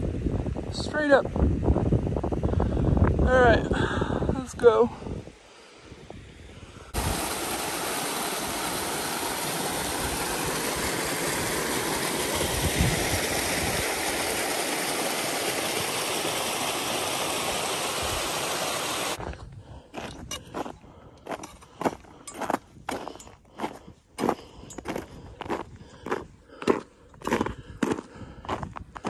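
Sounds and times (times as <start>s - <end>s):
water rushing over rocks: 6.9s - 19.2s.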